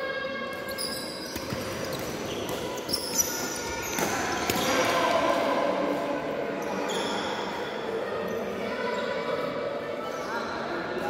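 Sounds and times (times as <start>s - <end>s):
sports shoes squeaking: 0.6s - 4.8s, 6.6s - 7.4s.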